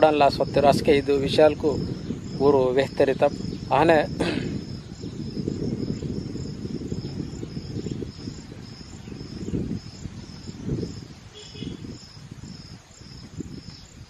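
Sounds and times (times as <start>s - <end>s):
insect chirping: 0.0s - 14.0s
wind on microphone: 0.0s - 14.0s.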